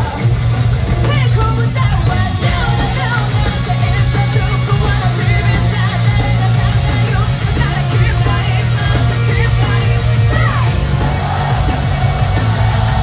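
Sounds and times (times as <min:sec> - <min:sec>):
rock band playing live: 0:00.0 - 0:13.0
woman singing: 0:01.0 - 0:11.2.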